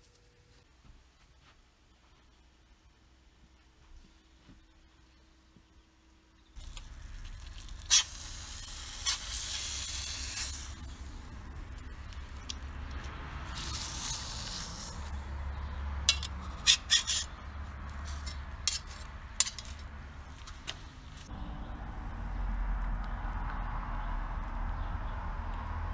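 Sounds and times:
knife scraping metal skewer: 16.1 - 17.4
low rumble: 21.2 - 25.9.

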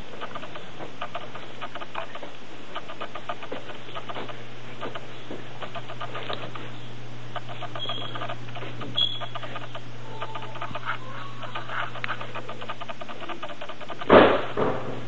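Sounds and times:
rapid faint ticking: 0.0 - 14.2
steady low hum: 0.0 - 15.0
loud thumps: 12.2 - 15.0.

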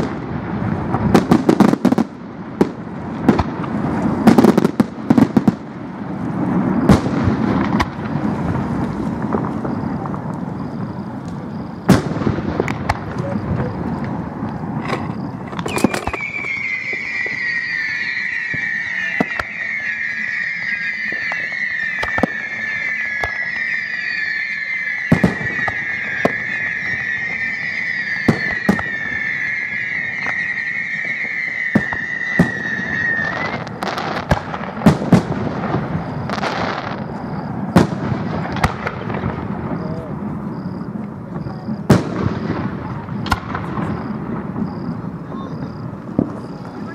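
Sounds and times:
high firework whistle: 1.0 - 5.7, 6.5 - 46.9
firework shells bursting: 11.8 - 39.9, 41.9 - 45.0.

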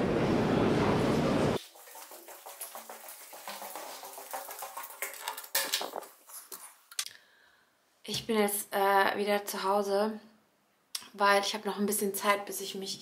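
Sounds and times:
station rumbling noise: 0.0 - 1.6.

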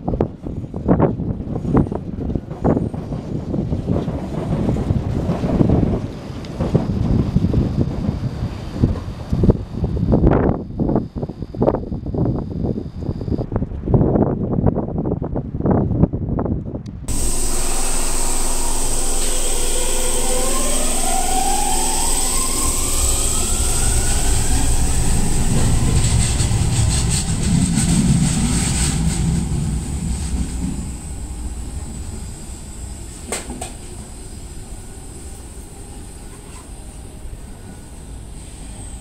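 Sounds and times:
electric train motor whine rising: 17.1 - 39.0.

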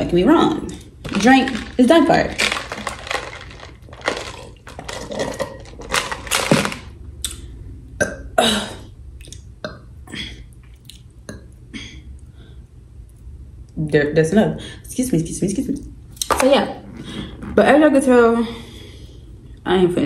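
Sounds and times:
food containers clicking: 0.7 - 6.9
person burping: 8.0 - 8.9.

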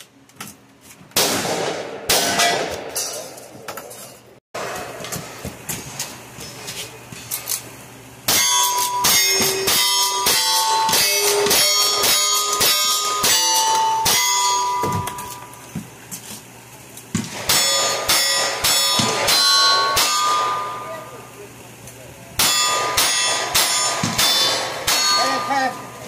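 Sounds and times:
rifle gunfire: 1.2 - 2.9, 22.4 - 25.1
bullets clanging on steel target: 2.1 - 4.9, 8.3 - 15.6, 17.1 - 21.2, 22.4 - 26.0.

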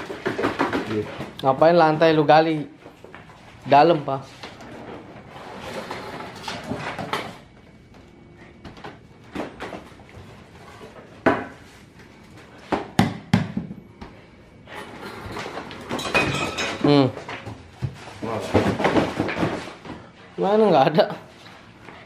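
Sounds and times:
furniture scuffling and bumping: 0.0 - 1.4, 14.8 - 20.3
sharp knocks on furniture: 12.7 - 13.9.

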